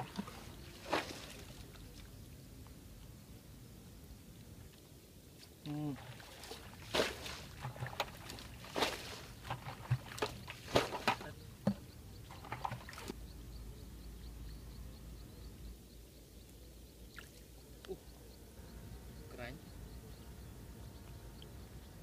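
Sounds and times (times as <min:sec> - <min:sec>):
splashes in muddy water: 0:00.0 - 0:02.1, 0:05.4 - 0:13.2.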